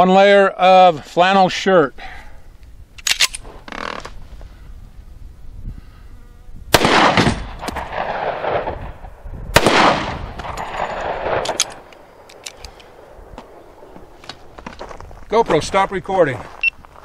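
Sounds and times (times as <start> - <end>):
pistol shots with echo: 6.8 - 13.9.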